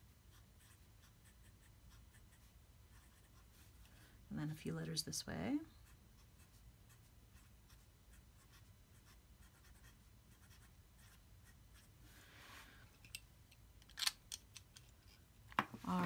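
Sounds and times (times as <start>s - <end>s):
pen nib scratching on paper: 0.3s - 3.7s, 5.8s - 11.9s.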